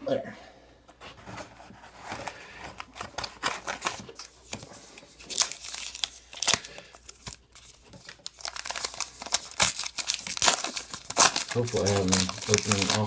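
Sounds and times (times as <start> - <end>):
wrapper tearing and crinkling: 2.9 - 13.0.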